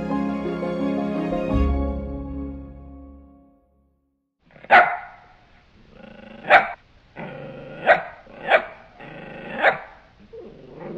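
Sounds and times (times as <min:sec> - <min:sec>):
dog barking: 0:04.6 - 0:05.3, 0:06.4 - 0:06.8, 0:07.8 - 0:08.9, 0:09.5 - 0:10.0
dog growling: 0:05.8 - 0:10.9.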